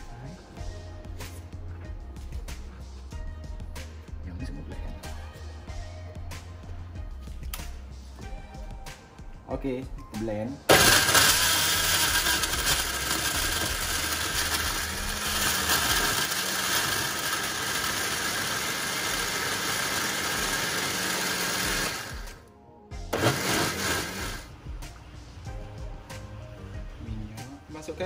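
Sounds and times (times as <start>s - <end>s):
blender grinding: 10.7s - 22.4s, 23.1s - 24.5s.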